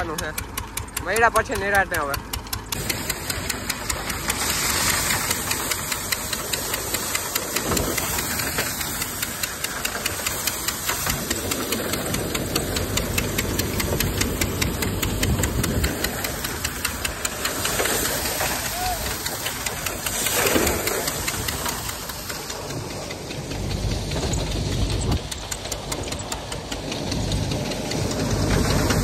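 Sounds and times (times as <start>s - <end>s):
rapid knocking clatter: 0.0s - 29.0s
thresher machine drone: 0.0s - 29.0s.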